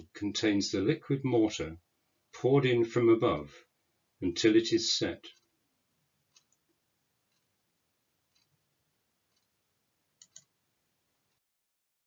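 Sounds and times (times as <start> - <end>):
faint clicks: 6.3 - 7.6, 8.3 - 8.6, 9.3 - 9.6, 10.2 - 10.6.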